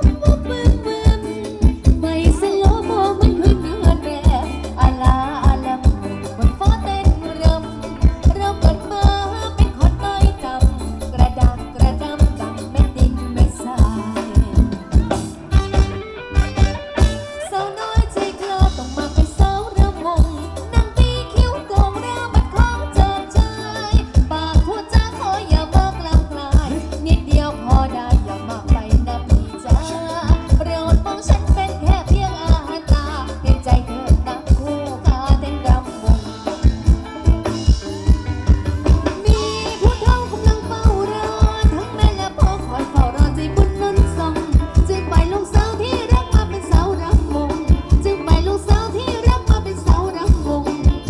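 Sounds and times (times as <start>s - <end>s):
rattling percussion: 0.0s - 17.3s
drum beat: 0.0s - 51.0s
melody and singing: 0.0s - 51.0s.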